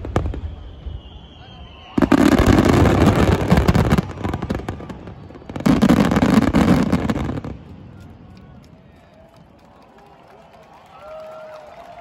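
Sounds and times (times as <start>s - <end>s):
fireworks bursting: 0.0s - 8.0s.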